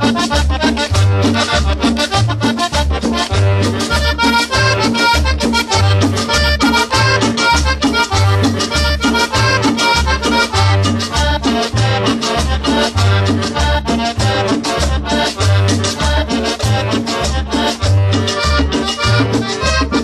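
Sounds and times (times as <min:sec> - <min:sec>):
cumbia music: 0:00.0 - 0:20.0.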